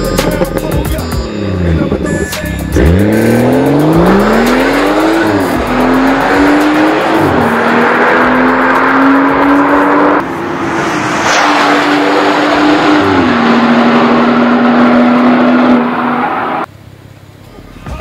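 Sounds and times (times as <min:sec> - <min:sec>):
car engine accelerating hard: 0:02.7 - 0:16.7.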